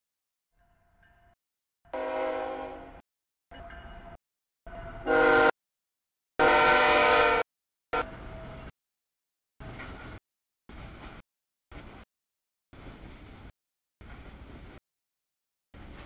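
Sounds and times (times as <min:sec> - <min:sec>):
locomotive horn blasts: 0:01.9 - 0:03.0, 0:05.0 - 0:05.6, 0:06.4 - 0:07.4.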